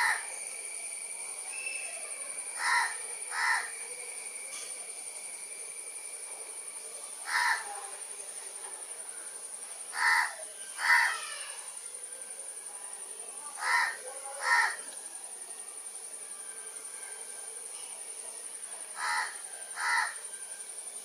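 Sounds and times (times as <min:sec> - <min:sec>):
high-pitched insect drone: 0:00.0 - 0:21.0.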